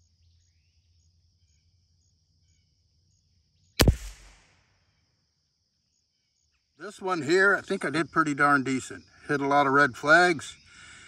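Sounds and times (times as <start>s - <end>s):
rifle shot: 3.8s - 4.6s.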